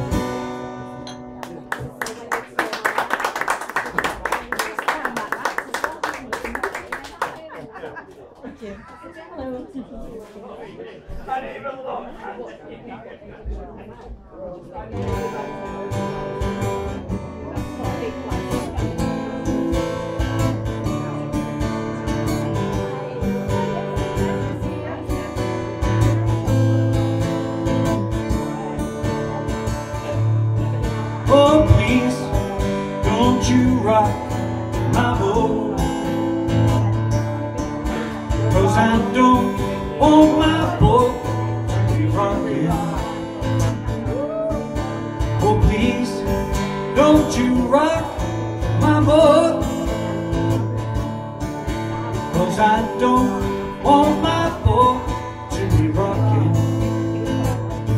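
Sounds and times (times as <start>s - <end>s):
acoustic guitar strummed: 0.0s - 1.7s, 15.0s - 57.9s
man singing: 30.1s - 37.0s, 37.8s - 57.9s.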